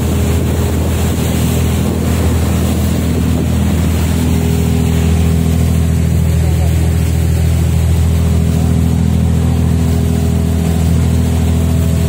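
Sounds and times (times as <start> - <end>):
wind on microphone: 0.0 - 6.4
boat engine droning: 0.0 - 12.0
wake rushing: 0.0 - 12.0.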